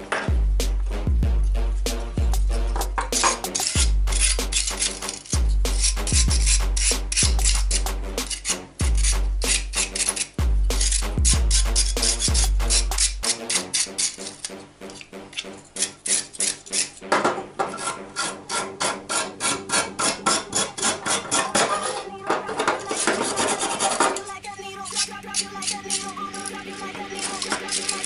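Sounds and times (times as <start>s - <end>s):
wire brush scrubbing metal: 1.0s - 28.0s.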